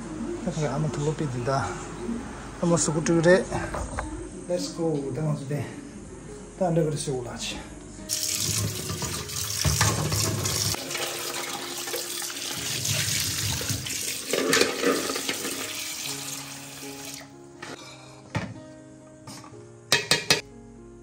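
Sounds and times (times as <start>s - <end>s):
tap water running into sink: 8.1s - 17.2s.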